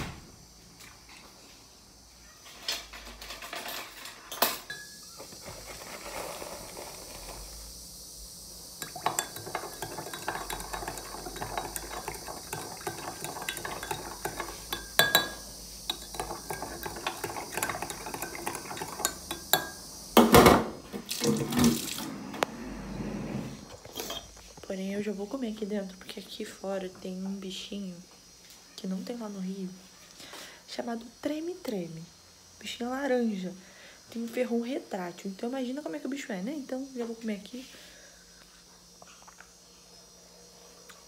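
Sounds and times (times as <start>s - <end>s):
dishes and cutlery clinking: 2.6s - 5.0s, 8.8s - 19.8s, 23.8s - 24.4s
water running: 8.8s - 19.8s, 20.9s - 22.4s.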